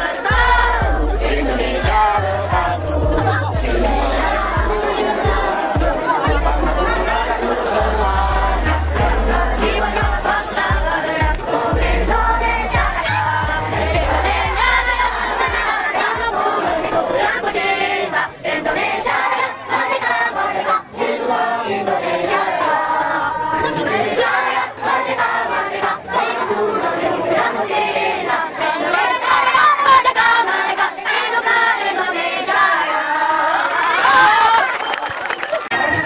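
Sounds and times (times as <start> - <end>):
children singing together: 0.0 - 34.4.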